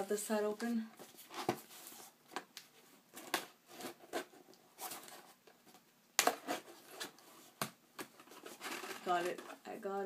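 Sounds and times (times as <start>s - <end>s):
cardboard rustling and crackling: 3.2s - 9.6s.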